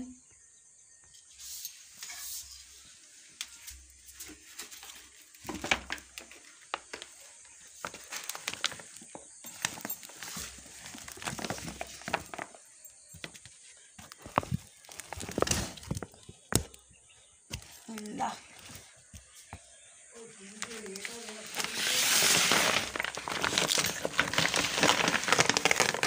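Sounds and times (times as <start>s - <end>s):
plastic bag crinkling: 4.3s - 12.6s, 14.0s - 16.7s, 20.6s - 26.0s.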